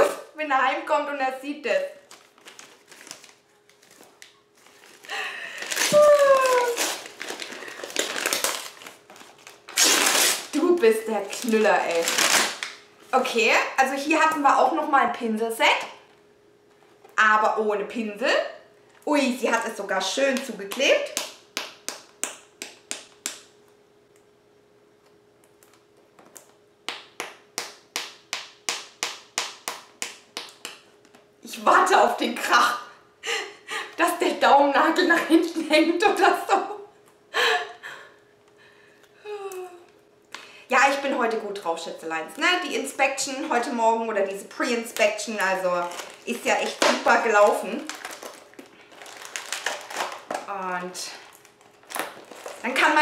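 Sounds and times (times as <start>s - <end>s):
faint steady hum: 0.0s - 53.0s
package wrapping crinkling: 2.0s - 12.9s, 44.9s - 53.0s
person's falling vocal sound: 5.1s - 7.0s.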